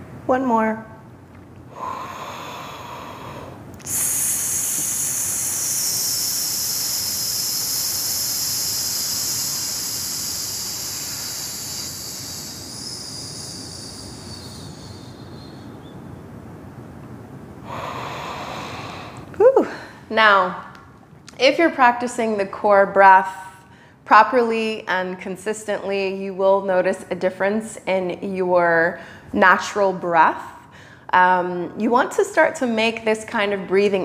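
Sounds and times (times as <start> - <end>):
woman inhaling: 1.7 - 15.6, 17.6 - 20.1, 30.7 - 31.1
long hissing exhale: 1.7 - 15.8, 17.6 - 20.1.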